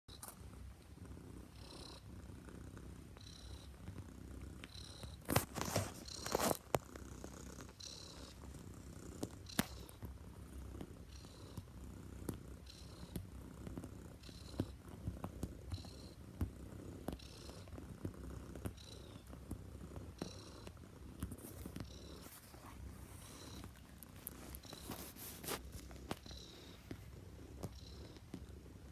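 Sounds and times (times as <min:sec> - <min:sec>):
cat purring: 0:00.1 - 0:28.9
paws clicking on fabric: 0:08.3 - 0:28.9.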